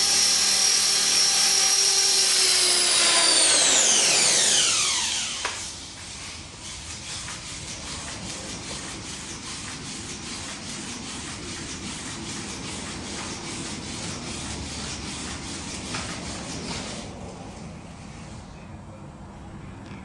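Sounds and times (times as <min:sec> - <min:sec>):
small motors and gears whirring: 0:00.0 - 0:10.1.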